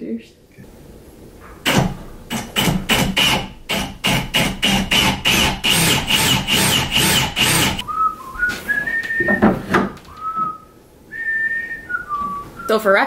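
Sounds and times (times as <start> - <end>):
rasping strokes on wood: 1.7 - 7.8
person whistling a tune: 7.8 - 9.5, 10.1 - 12.8.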